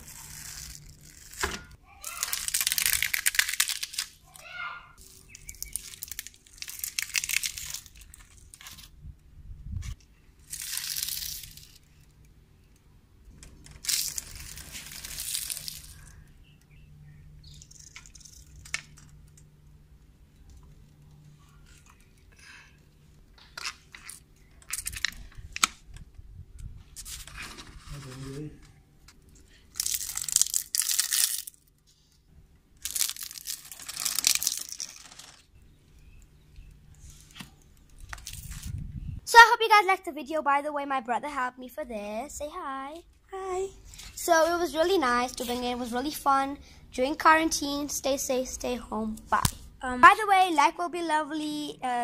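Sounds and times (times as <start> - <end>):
sharp cracks: 0.2 - 8.4.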